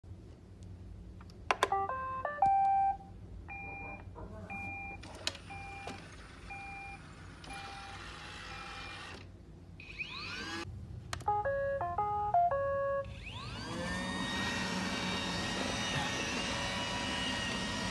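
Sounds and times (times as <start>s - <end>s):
robot vacuum motors running: 9.8s - 10.7s, 13.1s - 17.9s.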